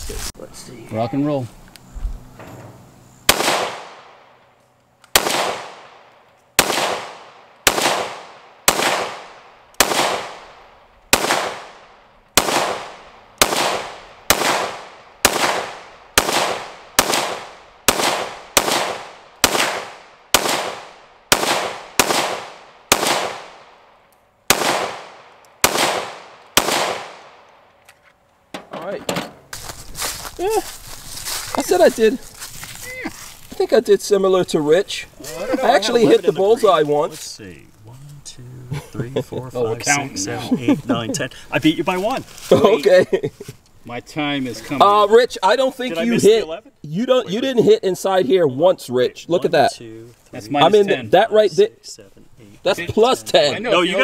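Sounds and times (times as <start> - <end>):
pistol shots with echo: 3.3 - 4.4, 5.1 - 23.9, 24.5 - 27.5.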